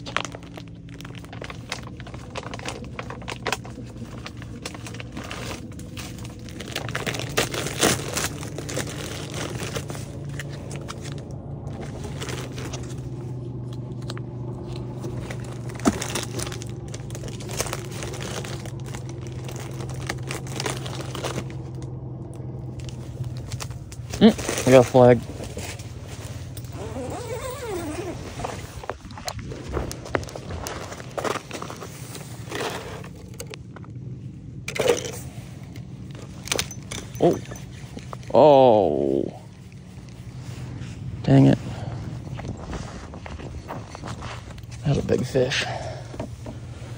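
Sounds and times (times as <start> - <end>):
plastic packaging crinkling: 0.0 - 14.2, 14.8 - 21.9
steady low hum: 0.0 - 46.9.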